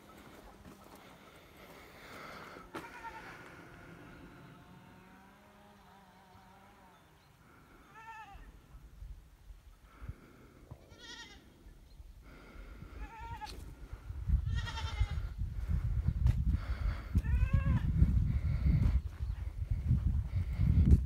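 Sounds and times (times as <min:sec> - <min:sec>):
low rumbling noise: 0:01.4 - 0:07.9
goats bleating: 0:02.4 - 0:05.3, 0:10.9 - 0:11.4, 0:14.5 - 0:15.2.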